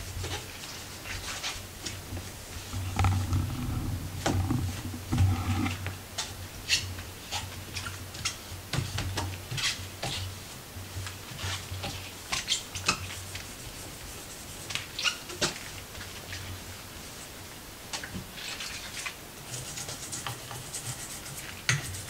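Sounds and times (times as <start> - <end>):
cloth rubbing wood: 0.4 - 6.1
clicks squeaks and light knocks: 15.0 - 15.6.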